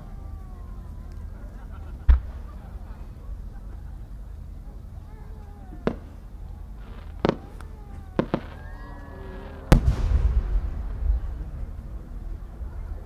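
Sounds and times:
firework pops: 2.0s - 2.4s, 7.0s - 8.6s
low rumble: 5.8s - 13.0s
firework boom: 9.5s - 12.2s.

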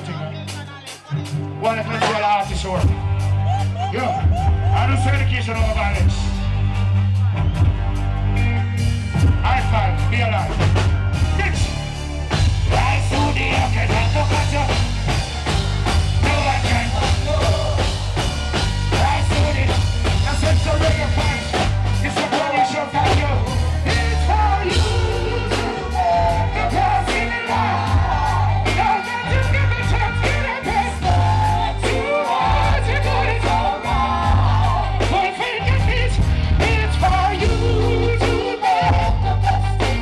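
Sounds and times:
live reggae band: 0.0s - 40.0s
lead singer: 8.3s - 40.0s
backing vocals: 11.2s - 40.0s.

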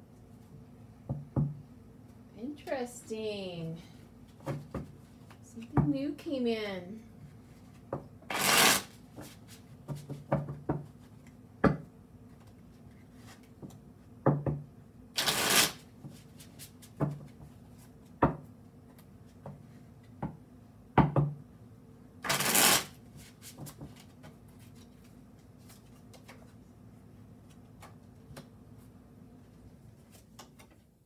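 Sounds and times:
cards riffling: 8.3s - 8.9s, 22.2s - 23.0s.

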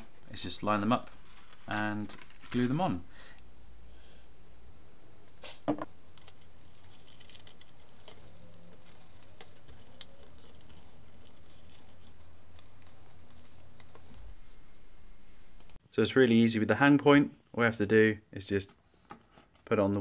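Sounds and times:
steady low hum: 0.0s - 15.8s.

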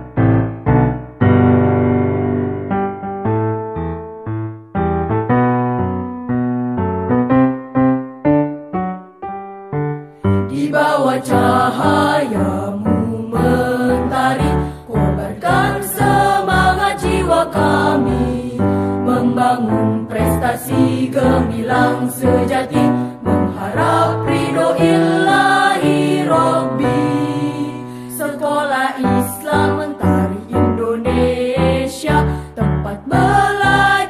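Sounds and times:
school anthem singing: 10.5s - 34.0s.

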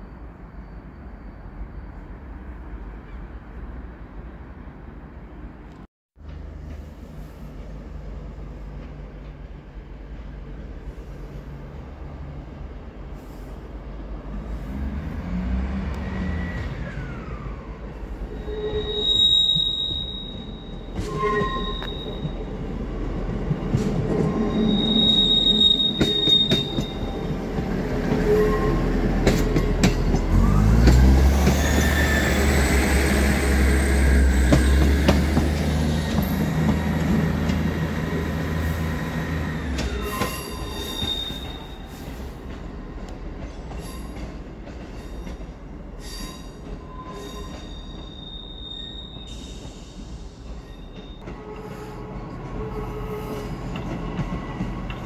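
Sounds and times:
train wheels squealing: 0.0s - 3.3s, 15.3s - 22.8s, 23.7s - 42.6s, 43.4s - 55.0s.

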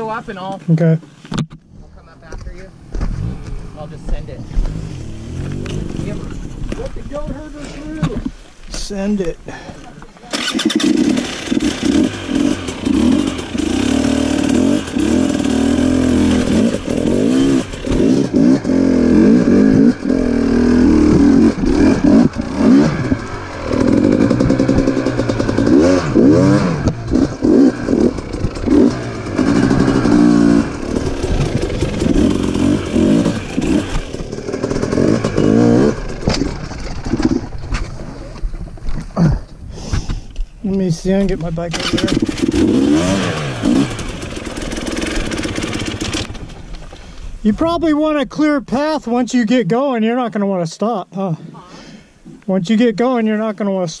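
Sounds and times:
dirt bike engine revving: 3.0s - 6.6s, 10.3s - 37.6s, 41.6s - 46.7s.

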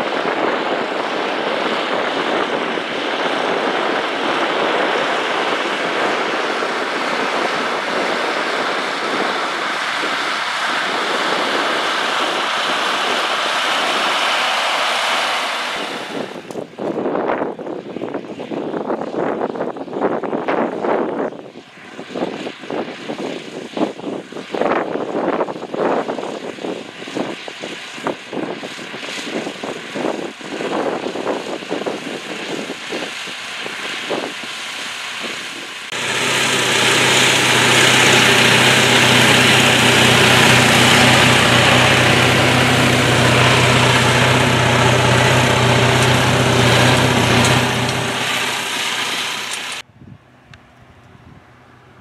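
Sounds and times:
wind buffeting microphone: 0.0s - 51.5s
tractor diesel engine droning: 1.1s - 16.6s, 33.4s - 49.8s.

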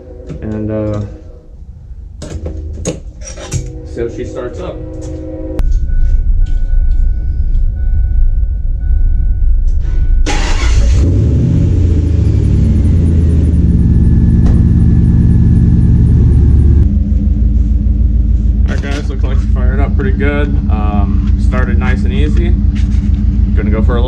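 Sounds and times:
engine cranking and idling: 5.6s - 24.0s
faint high whine: 12.0s - 17.1s.

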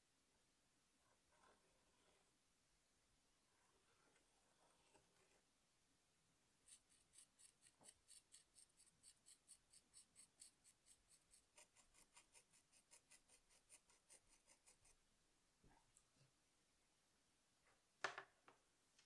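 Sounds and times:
tool scratching wet clay: 6.7s - 15.0s.

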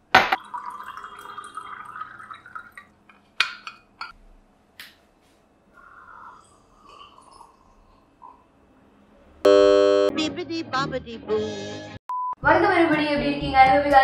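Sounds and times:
water pouring into glass: 0.4s - 3.0s
person drinking: 5.8s - 8.5s.

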